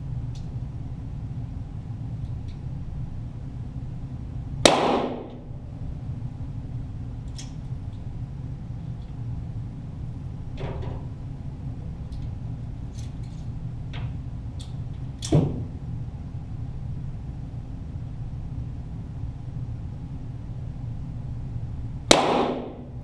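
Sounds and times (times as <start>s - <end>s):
low hum: 0.0s - 23.0s
pistol shots cracking: 4.6s - 5.5s, 22.1s - 22.9s.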